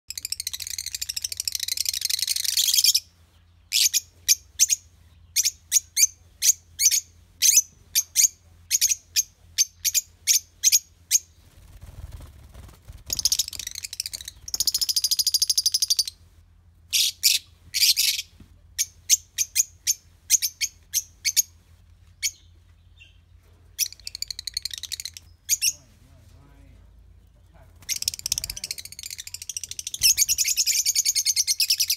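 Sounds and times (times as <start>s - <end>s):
lovebirds chirping: 0.1s - 31.9s
lovebirds rapid chattering: 3.7s - 16.2s, 22.2s - 25.9s, 27.2s - 31.9s.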